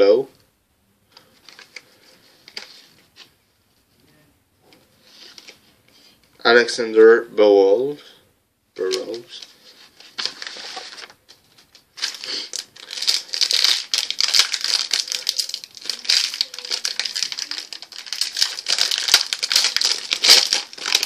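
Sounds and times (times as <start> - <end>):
plastic wrapper crinkling: 8.8 - 21.0.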